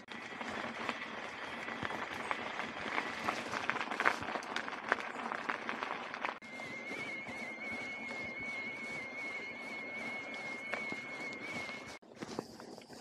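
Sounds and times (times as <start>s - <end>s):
tyres rolling on concrete: 0.0s - 12.5s
bike tyres crunching over gravel: 0.0s - 13.0s
thin steady high tone: 6.4s - 13.0s.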